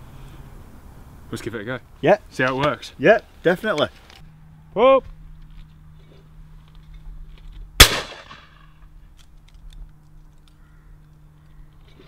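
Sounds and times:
shotgun shot with echo: 7.8s - 8.6s.

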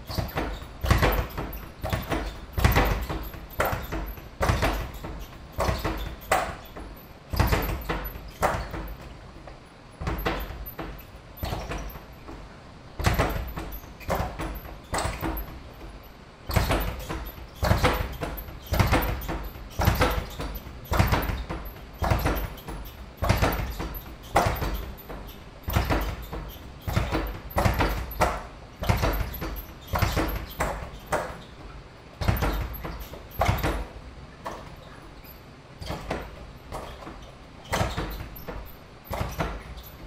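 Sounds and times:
punches on leather speed bag: 0.0s - 12.4s, 13.0s - 31.4s, 32.2s - 34.8s, 35.8s - 40.0s
speed bag rattling on wooden platform: 0.0s - 31.6s, 32.2s - 40.0s.

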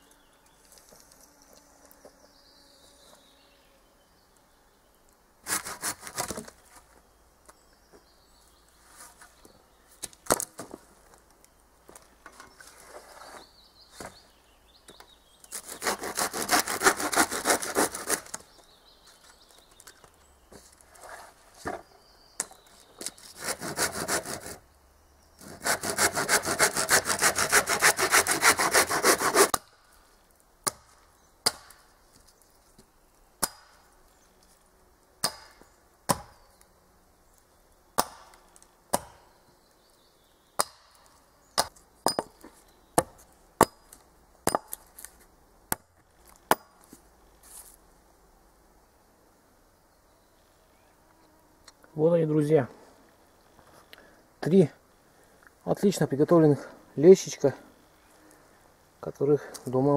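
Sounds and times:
hand saw cutting wood: 5.4s - 6.4s, 15.5s - 18.4s, 23.0s - 24.6s, 25.4s - 29.6s.

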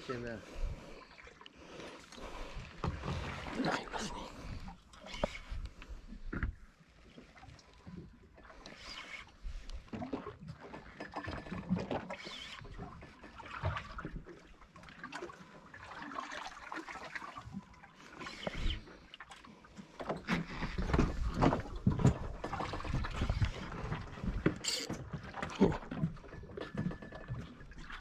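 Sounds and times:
water sloshing against hull: 0.0s - 28.0s
knocks and clatter on boat: 2.7s - 3.8s, 6.2s - 6.7s, 9.8s - 14.3s, 19.8s - 28.0s.

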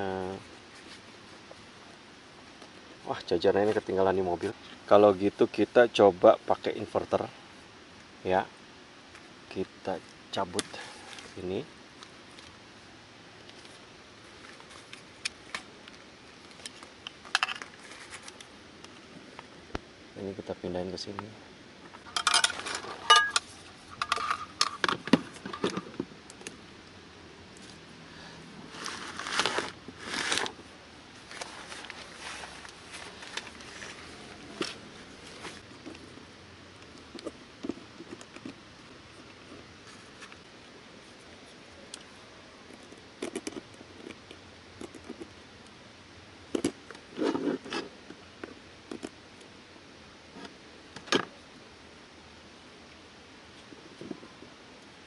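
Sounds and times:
cable and plastic box handling: 36.8s - 40.5s.

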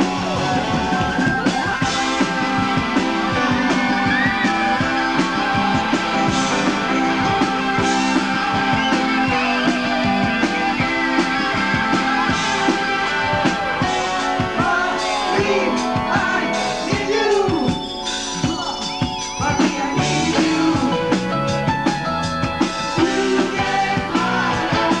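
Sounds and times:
electric guitar: 0.0s - 18.2s
drum beats: 0.0s - 25.0s
person singing: 14.4s - 17.8s, 19.4s - 21.2s, 23.0s - 25.0s.

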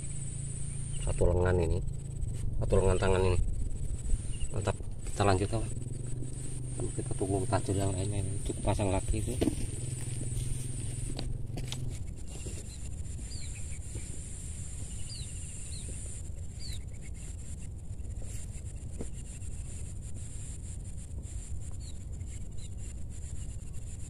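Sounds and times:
high-pitched insect drone: 0.0s - 24.0s
camera handling rumble: 8.4s - 14.2s.

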